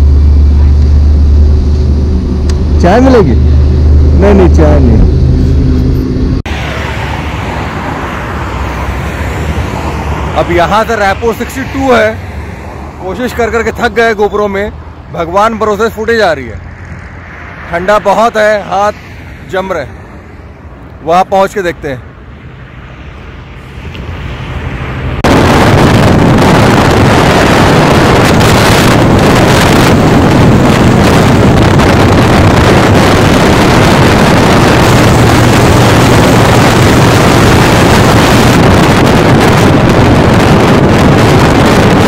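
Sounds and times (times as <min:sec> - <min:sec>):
motorcycle engine hum: 0:00.0 - 0:11.4, 0:22.0 - 0:42.0
wind buffeting microphone: 0:24.0 - 0:42.0.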